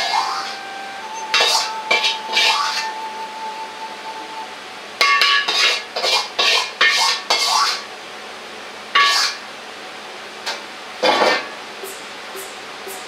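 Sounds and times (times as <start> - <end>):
metal ladle scraping in a wok: 1.4 - 2.8, 5.0 - 7.8.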